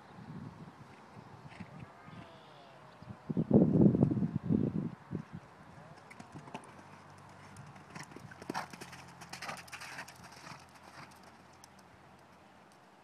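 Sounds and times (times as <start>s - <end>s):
hoofbeats on gravel: 6.0s - 11.4s.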